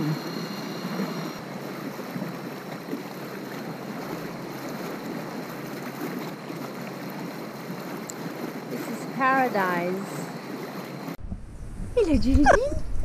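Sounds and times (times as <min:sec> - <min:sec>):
water splashing along boat hull: 0:00.0 - 0:11.2.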